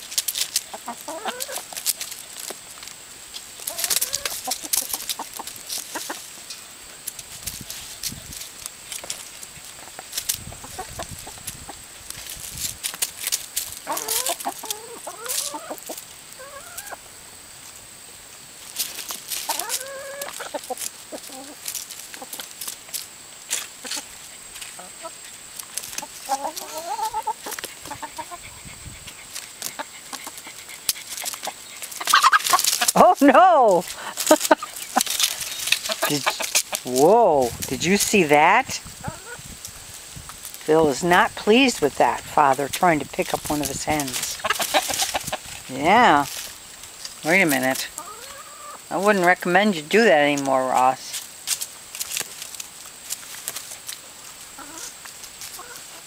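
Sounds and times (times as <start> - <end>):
chickens clucking: 0.0 - 56.0
drawn-out wavering chicken call: 13.9 - 17.0, 19.5 - 21.6, 26.0 - 32.9, 44.4 - 45.4.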